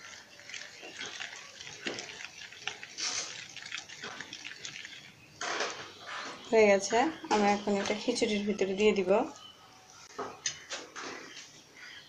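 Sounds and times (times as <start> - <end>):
wet sloshing paste: 0.0 - 5.2.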